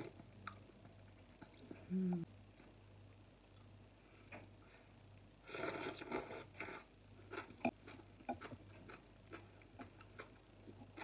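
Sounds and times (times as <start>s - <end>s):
person slurping noodles: 5.5s - 6.9s.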